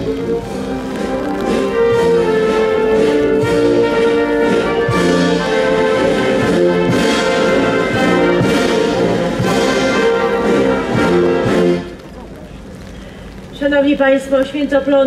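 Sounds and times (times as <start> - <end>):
military brass band playing: 0.0 - 12.2.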